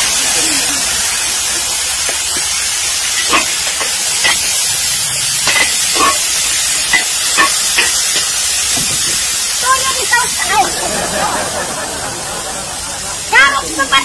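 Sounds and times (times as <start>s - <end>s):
food sizzling in a wok: 0.0s - 14.0s
metal spatula scraping pan: 5.4s - 8.3s.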